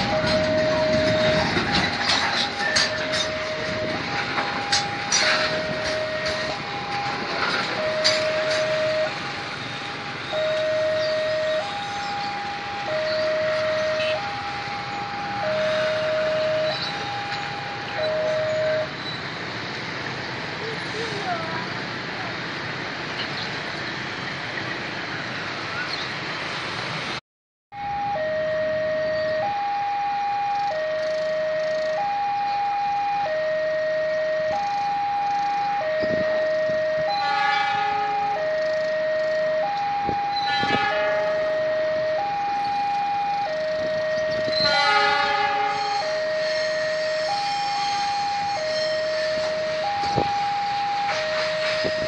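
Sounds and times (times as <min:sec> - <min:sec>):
train wheels rumbling on rail: 0:00.0 - 0:10.4, 0:40.1 - 0:41.4, 0:43.8 - 0:52.0
two-tone crossing alarm: 0:00.0 - 0:19.3, 0:27.7 - 0:52.0
freight train wagons rumbling: 0:00.0 - 0:27.0, 0:34.5 - 0:52.0.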